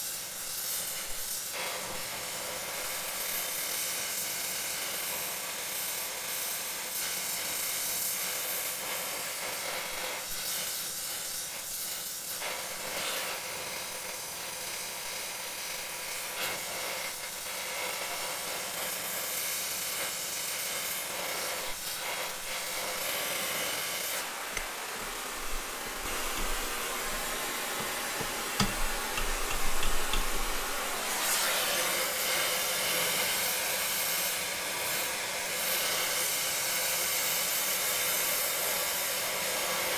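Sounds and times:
gas torch flame hissing: 0:00.0 - 0:39.9
short knocks: 0:26.1 - 0:30.7.

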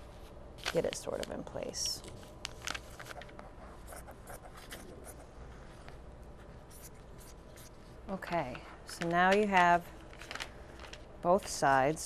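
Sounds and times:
paper and fabric rustling: 0:00.1 - 0:04.9, 0:08.9 - 0:12.0.

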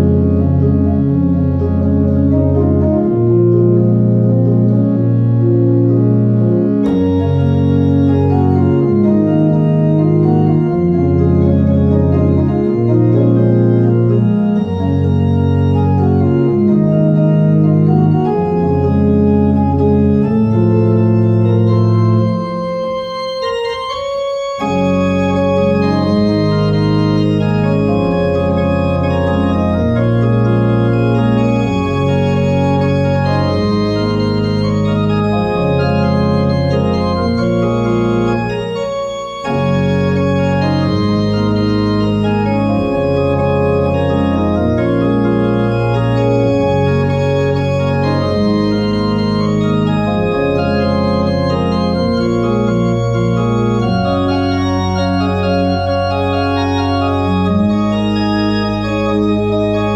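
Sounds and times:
pipe organ playing: 0:00.0 - 0:59.9.

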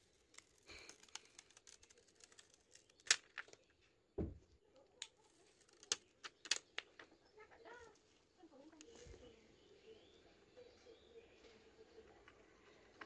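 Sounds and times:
plastic film crinkling: 0:00.0 - 0:03.9, 0:05.0 - 0:08.1
dull thump: 0:04.2 - 0:04.5.

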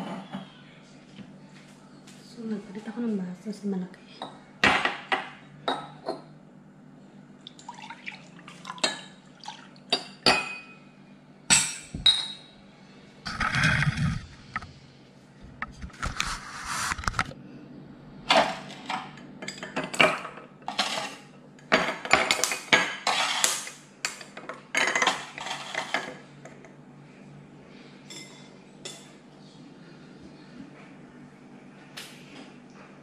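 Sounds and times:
metal spoon scraping glass and dish: 0:23.0 - 0:23.5.

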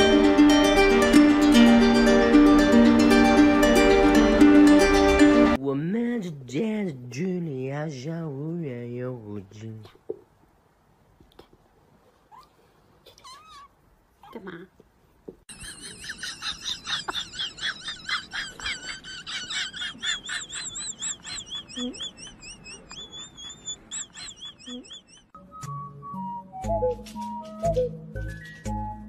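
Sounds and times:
high-pitched warbling chirps: 0:20.1 - 0:25.3.

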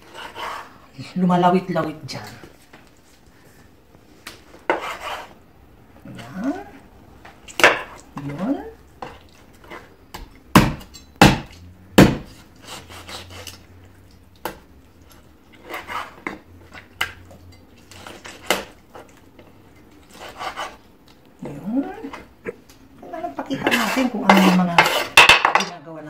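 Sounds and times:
knife scraping: 0:00.0 - 0:00.8, 0:04.6 - 0:05.4, 0:12.3 - 0:13.7, 0:15.5 - 0:16.9, 0:17.8 - 0:19.2, 0:20.0 - 0:20.9, 0:23.4 - 0:25.3
knife chopping on wooden board: 0:10.1 - 0:13.2.

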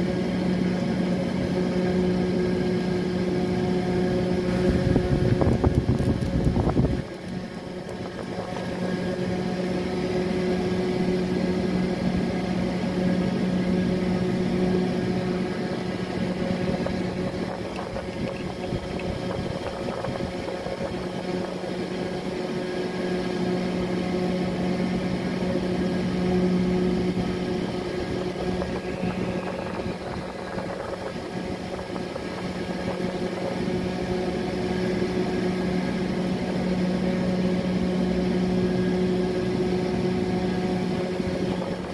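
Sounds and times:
small motor humming: 0:03.2 - 0:41.9.

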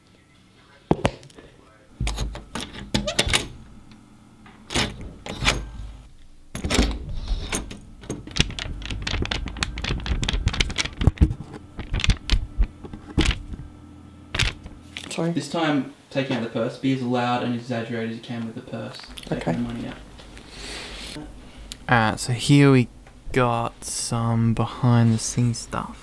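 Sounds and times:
banknotes crinkling and snapping: 0:08.0 - 0:13.7, 0:14.3 - 0:15.1.

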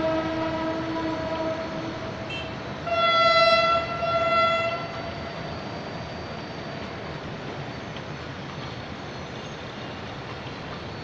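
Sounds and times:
train horn blasts: 0:00.0 - 0:05.4
rumble of rail yard and city: 0:00.0 - 0:11.0.

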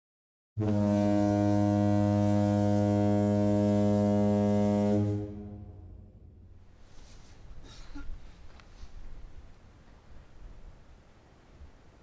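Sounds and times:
low ship's horn blast: 0:00.6 - 0:06.6.

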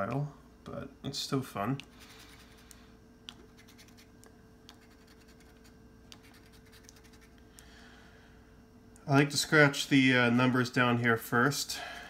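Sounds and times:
coin scratching a ticket: 0:03.4 - 0:04.1, 0:04.7 - 0:07.4.

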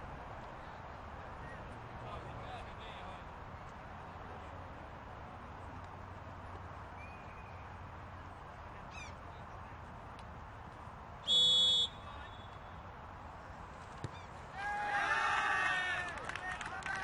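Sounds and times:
faint outdoor background noise: 0:00.0 - 0:17.0
referee's whistle blast: 0:11.3 - 0:12.6.

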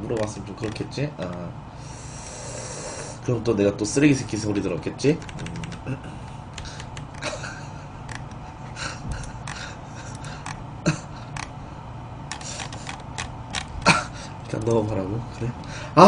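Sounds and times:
man laughing quietly: 0:07.1 - 0:11.4, 0:13.8 - 0:14.4.

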